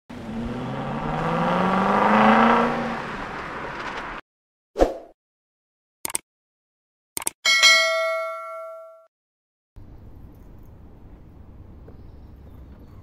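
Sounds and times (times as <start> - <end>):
car engine revving: 0.1 - 4.2.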